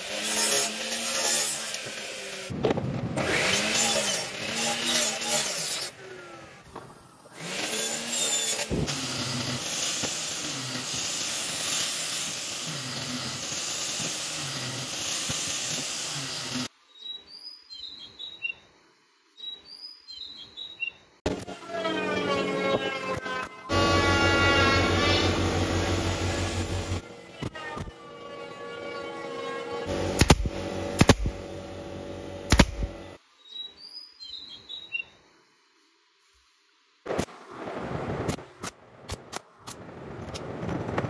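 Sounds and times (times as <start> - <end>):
angle grinder sanding wood: 0.0 - 2.5, 3.2 - 6.5, 7.3 - 16.7, 21.6 - 27.0
miter saw cutting wood: 0.0 - 2.5, 3.2 - 6.7, 7.3 - 16.7, 21.3 - 33.2.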